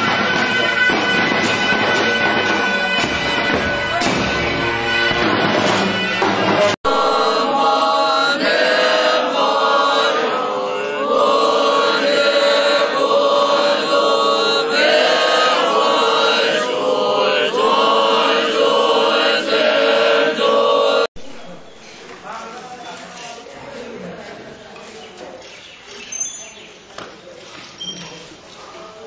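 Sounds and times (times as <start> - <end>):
group chanting a prayer: 5.9 - 21.7.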